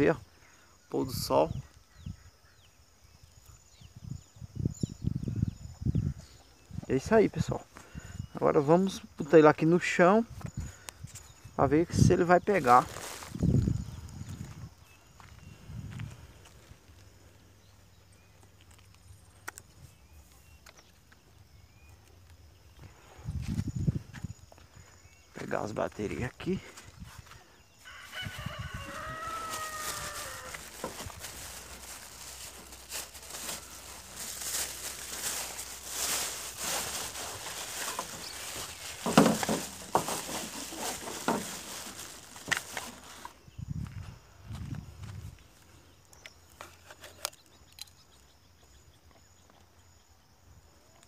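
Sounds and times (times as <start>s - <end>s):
faint bird chirps: 0.2s - 7.0s
plastic bag rustling: 12.6s - 13.5s, 28.3s - 43.3s.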